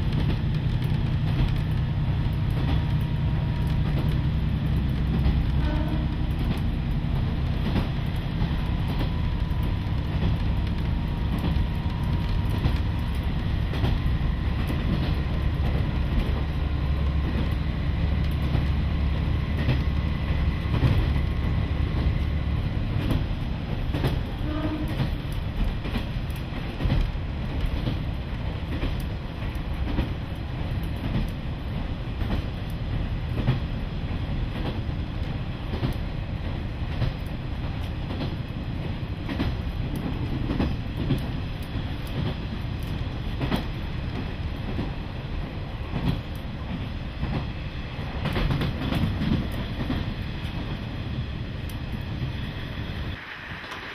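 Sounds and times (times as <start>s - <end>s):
wheels clicking over rail joints: 0.0s - 52.2s.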